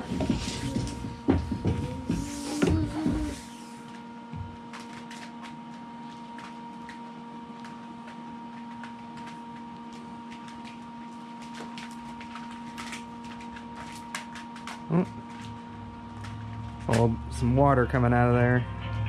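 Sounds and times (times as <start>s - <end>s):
steady hum: 0.0s - 19.0s.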